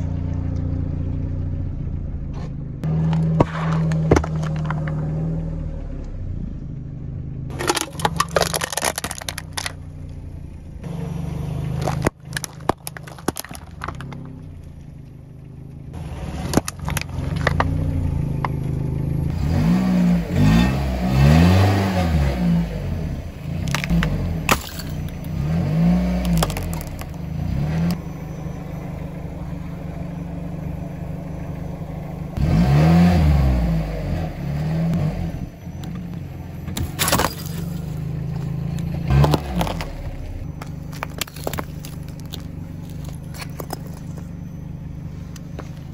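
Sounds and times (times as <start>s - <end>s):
car engine idling and revving: 0.0s - 45.9s
ice cracking and shattering: 7.5s - 9.8s, 11.8s - 14.3s, 23.7s - 25.2s, 26.1s - 27.2s, 36.8s - 38.1s, 40.6s - 44.2s
tyre crushing objects: 23.7s - 27.2s, 36.7s - 44.3s.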